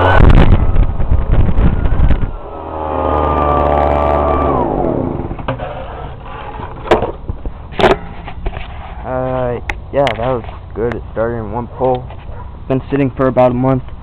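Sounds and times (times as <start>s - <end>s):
leaf blower engine running: 2.4s - 5.5s.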